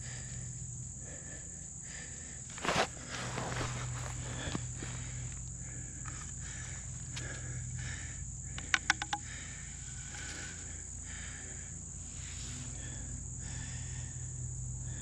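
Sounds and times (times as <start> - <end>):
insects chirping: 0.0 - 15.0
wooden sharp clicks: 8.5 - 9.4.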